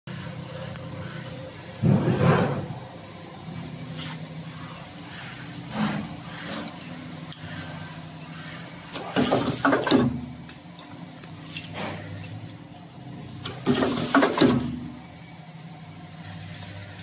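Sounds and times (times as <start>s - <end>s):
machine humming: 0.1s - 17.0s
mechanical clatter: 8.9s - 14.9s.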